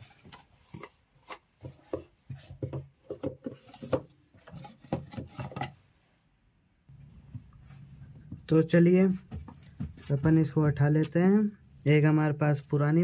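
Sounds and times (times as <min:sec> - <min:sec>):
boxes handled on wooden table: 0:00.0 - 0:05.8.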